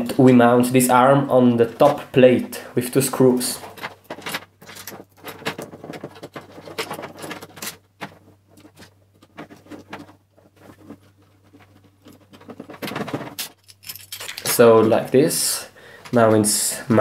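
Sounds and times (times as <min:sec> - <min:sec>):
plastic parts clicking and rattling: 0:03.6 - 0:15.0.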